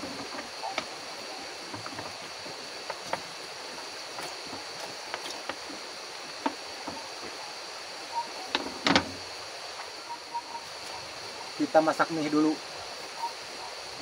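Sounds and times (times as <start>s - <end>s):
wood fire crackling: 0.0s - 10.0s
river hissing: 0.0s - 14.0s.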